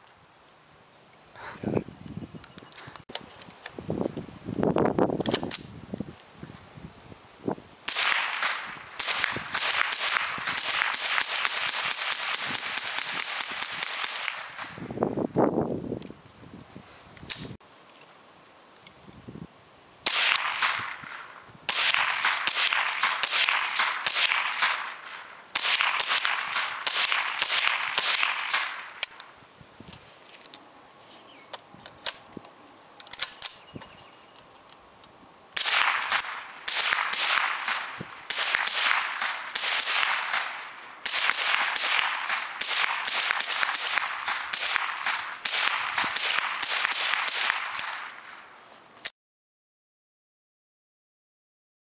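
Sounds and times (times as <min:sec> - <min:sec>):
rifle firing rapid shots: 0:07.9 - 0:14.8, 0:20.1 - 0:28.9, 0:35.6 - 0:48.3.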